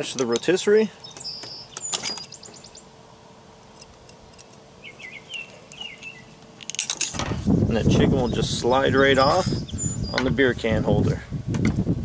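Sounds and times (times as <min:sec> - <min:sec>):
faint steady hum: 0:00.0 - 0:12.0
small bird chirping: 0:00.4 - 0:02.9, 0:04.8 - 0:06.4, 0:08.2 - 0:10.4.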